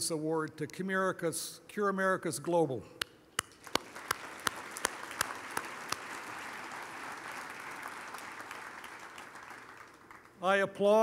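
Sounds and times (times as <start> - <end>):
sharp close claps: 3.0 - 10.4
audience applauding: 3.5 - 10.4.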